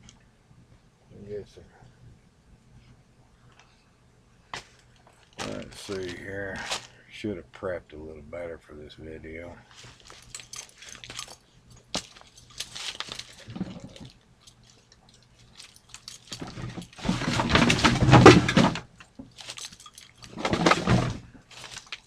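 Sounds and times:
rustling handling noise: 2.7s - 7.1s, 9.6s - 22.0s.

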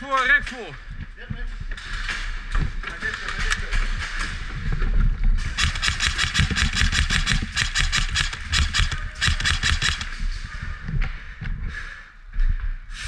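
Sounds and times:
airsoft rifle rapid bursts: 5.6s - 10.2s.

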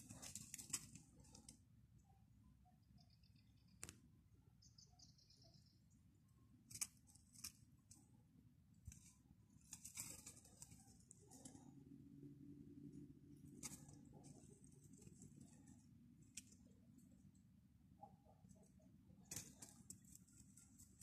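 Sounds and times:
faint soft rustles: 0.0s - 1.7s, 8.8s - 11.9s, 13.4s - 17.4s
faint low hum: 0.0s - 21.0s
faint high chirps: 2.0s - 6.0s.

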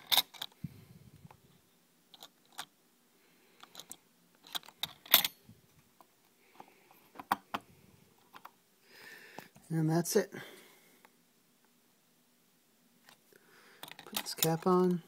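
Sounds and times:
small clicks of handling computer parts: 0.0s - 0.6s, 2.1s - 2.7s, 3.6s - 5.4s, 8.2s - 8.6s, 13.8s - 15.0s.

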